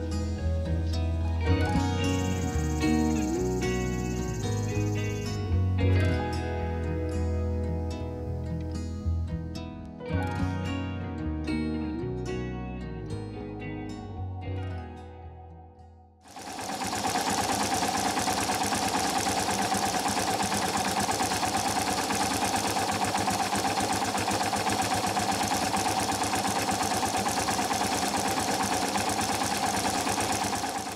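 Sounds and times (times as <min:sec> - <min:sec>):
motorcycle engine idling: 0:16.3 - 0:30.9.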